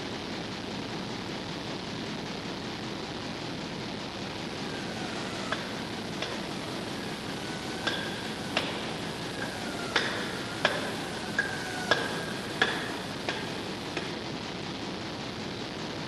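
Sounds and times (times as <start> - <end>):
hammer striking wooden block: 4.7 - 14.2.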